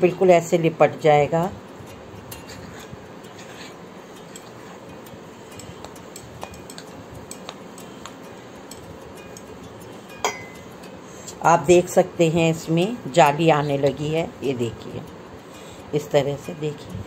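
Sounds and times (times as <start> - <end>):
dough worked by hand in bowl: 2.3 - 8.8
clink on glass bowl: 10.1 - 10.7.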